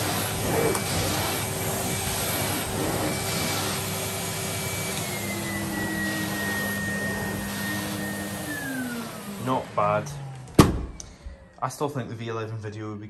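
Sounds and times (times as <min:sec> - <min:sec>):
floor tool pushed over carpet: 0:00.0 - 0:10.0
vacuum cleaner running: 0:00.0 - 0:11.6.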